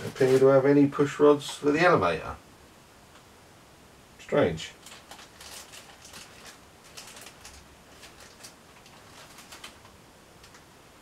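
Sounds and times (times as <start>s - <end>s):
plastic bag rustling: 0.0s - 0.7s, 4.8s - 10.6s.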